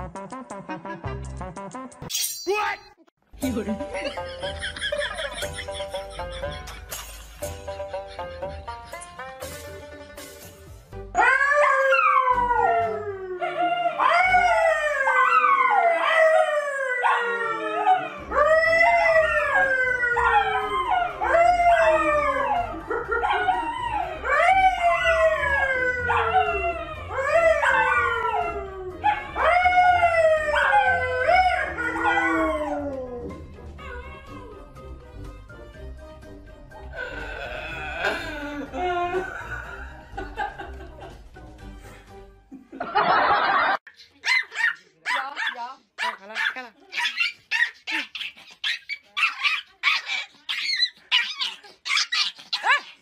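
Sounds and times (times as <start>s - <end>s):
dogs howling: 11.2s - 34.7s.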